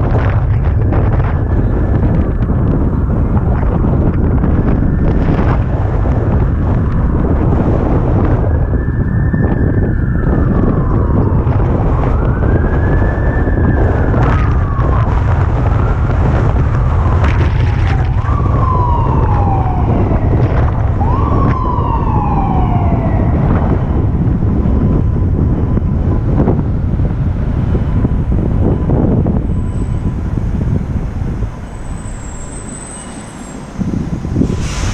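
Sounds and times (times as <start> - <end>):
fire truck siren wailing: 0.0 - 34.9
wind rumble on microphone: 0.0 - 34.9.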